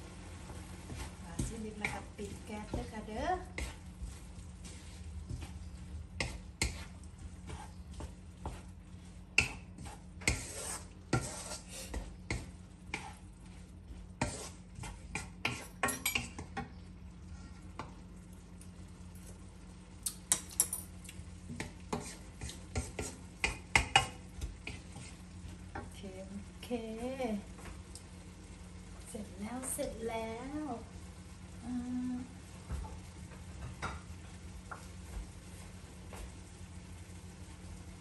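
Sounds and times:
light sizzle: 0.0 - 38.0
steady low hum: 0.0 - 38.0
spatula scraping a metal wok: 9.4 - 13.2, 14.1 - 16.3, 21.9 - 25.2.

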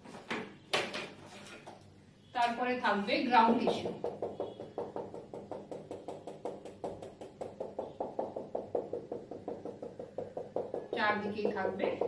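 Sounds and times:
marker tapping on whiteboard: 3.5 - 12.0.

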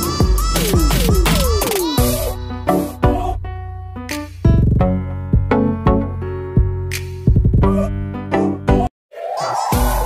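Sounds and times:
electronic synth music: 0.0 - 3.1, 9.2 - 10.0.

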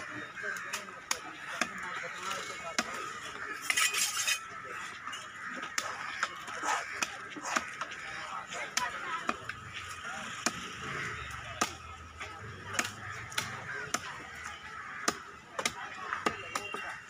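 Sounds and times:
cleaver chopping fish on wood: 0.7 - 1.9, 2.7 - 3.1, 5.6 - 8.0, 10.4 - 17.0.

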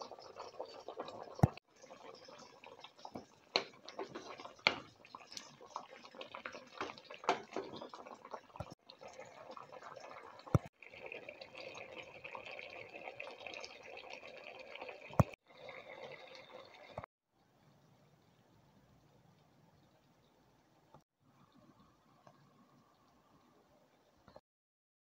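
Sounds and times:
sauce bubbling in frying pan: 0.0 - 17.0.

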